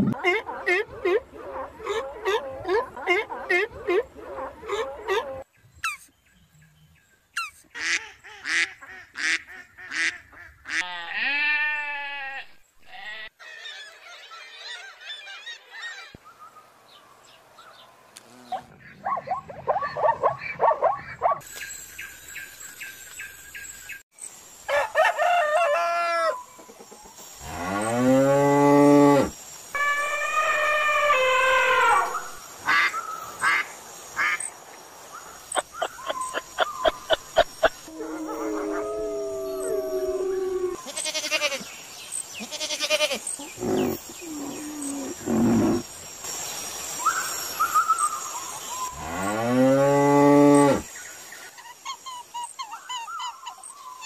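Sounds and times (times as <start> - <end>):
animal cries and honks: 28.8 - 32.4, 37.9 - 41.6.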